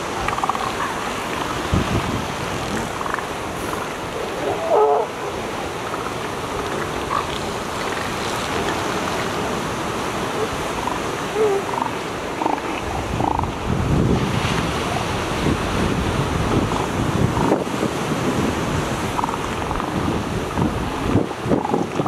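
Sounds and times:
surf: 0:00.0 - 0:22.0
wind: 0:00.0 - 0:22.0
elephant seals calling and grunting: 0:00.1 - 0:01.7, 0:02.5 - 0:09.4, 0:10.2 - 0:13.6, 0:19.0 - 0:20.7.

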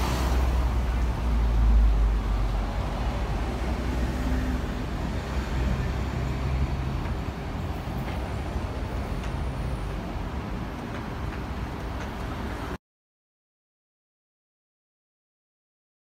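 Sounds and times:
passing traffic hum and rumble: 0:00.0 - 0:12.8.

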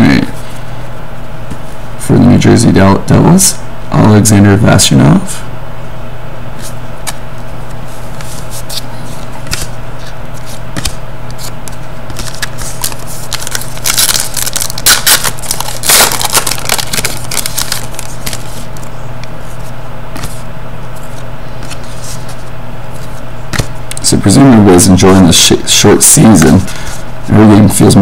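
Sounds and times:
steady low hum: 0:00.0 - 0:28.0
trading cards shuffling: 0:06.6 - 0:23.7
foil wrapper crinkling: 0:12.1 - 0:18.9.

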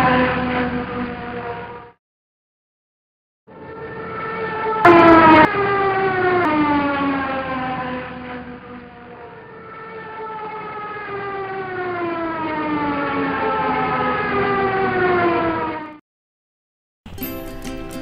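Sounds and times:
model plane motor whine: 0:00.0 - 0:01.9, 0:03.5 - 0:15.9.

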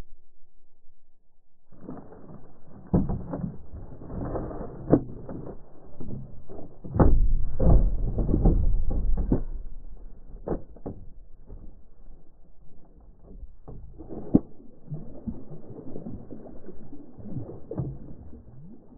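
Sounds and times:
clicks and knocks on plastic kayak: 0:02.8 - 0:14.6
low bumping and knocks: 0:06.8 - 0:12.1.

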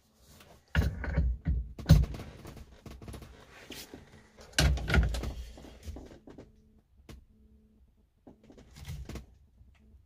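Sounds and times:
heavy thump and clatter: 0:00.7 - 0:03.4
clicks and knocks of parts: 0:04.4 - 0:07.2.

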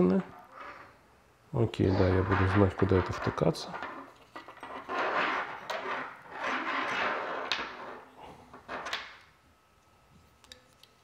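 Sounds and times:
rustling scrape of computer parts: 0:01.9 - 0:08.1.

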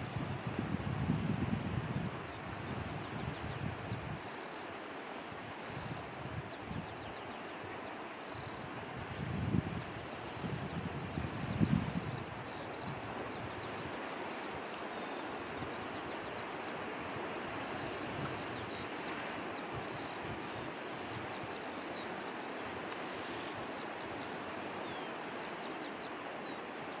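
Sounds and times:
wind buffeting microphone: 0:00.0 - 0:04.2, 0:08.3 - 0:14.0
small birds chirping: 0:06.4 - 0:26.7.

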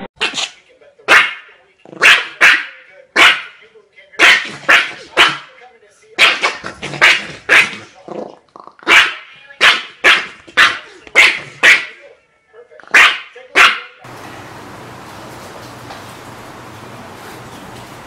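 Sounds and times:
small dog barking: 0:02.0 - 0:03.5, 0:04.2 - 0:05.5, 0:08.9 - 0:11.9, 0:12.9 - 0:14.0.

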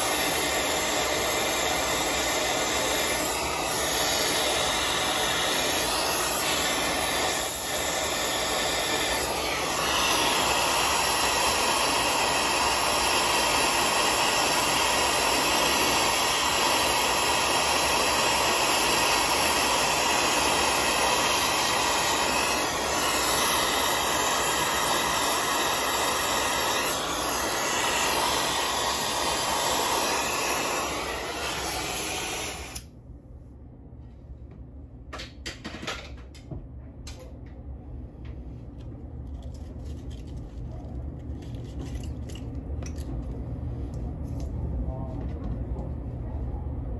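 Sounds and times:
torch flame hissing: 0:00.0 - 0:32.9.

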